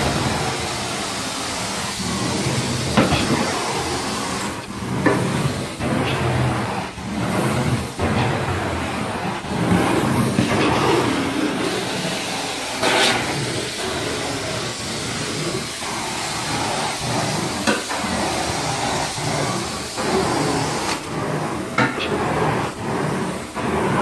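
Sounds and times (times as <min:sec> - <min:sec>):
carpet extraction wand rushing hiss: 0:10.0 - 0:21.3.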